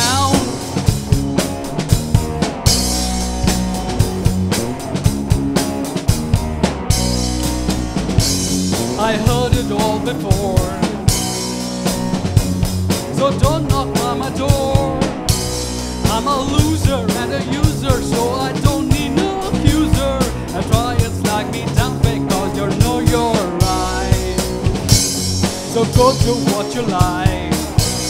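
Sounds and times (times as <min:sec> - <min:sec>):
man singing: 0:00.0 - 0:00.8, 0:08.7 - 0:11.2, 0:13.0 - 0:15.3, 0:16.0 - 0:24.8, 0:25.4 - 0:28.0
drum kit and cymbals: 0:00.0 - 0:28.0
keyboard: 0:00.0 - 0:28.0.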